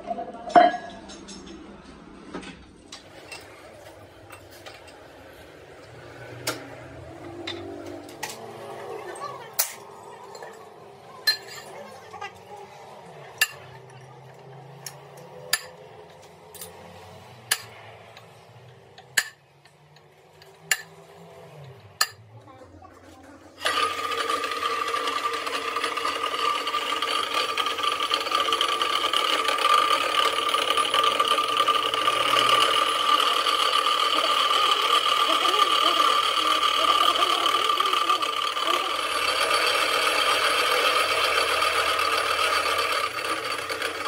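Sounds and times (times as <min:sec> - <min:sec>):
pillar drill whining: 0:23.6 - 0:44.0.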